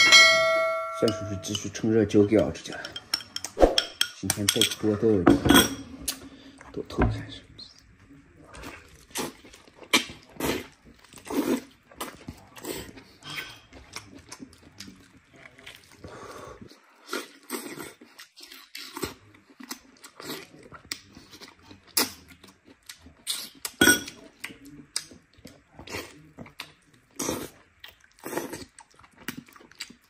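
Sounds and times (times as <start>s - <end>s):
wet chewing and slurping: 8.4s - 30.0s.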